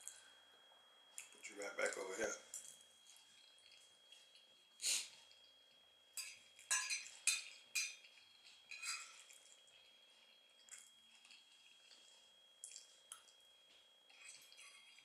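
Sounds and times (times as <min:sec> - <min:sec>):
breath through the nose: 0:04.8 - 0:05.2
metal fork scraping a plate: 0:08.7 - 0:09.3, 0:14.1 - 0:15.0.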